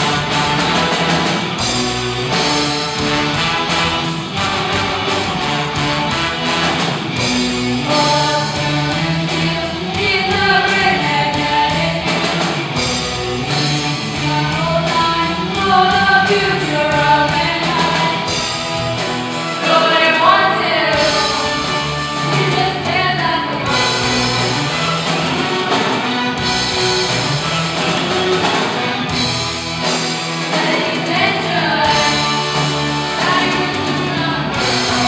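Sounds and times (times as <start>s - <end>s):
hard rock band playing: 0.0s - 35.0s
singers singing melody: 7.8s - 26.4s, 30.2s - 35.0s.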